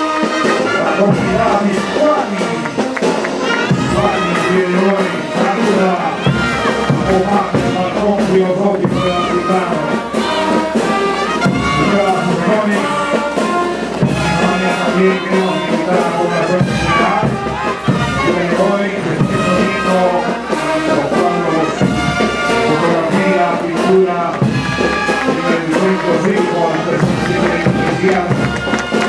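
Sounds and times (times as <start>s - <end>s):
brass band playing: 0.0s - 29.0s.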